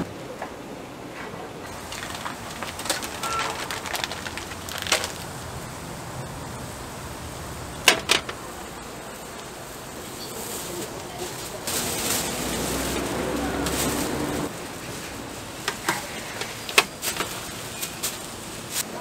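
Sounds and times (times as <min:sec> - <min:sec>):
plastic bag rustling: 0:01.7 - 0:07.1, 0:09.2 - 0:19.0.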